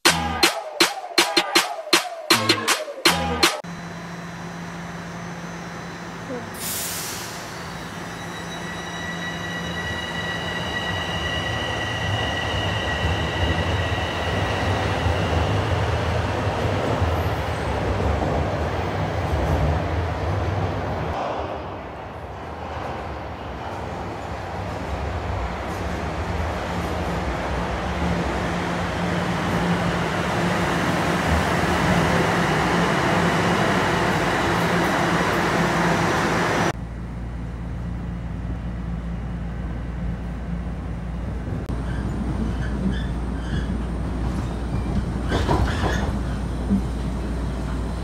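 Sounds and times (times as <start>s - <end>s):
metro train rushing past: 3.8s - 48.0s
rumble inside moving train: 15.6s - 48.0s.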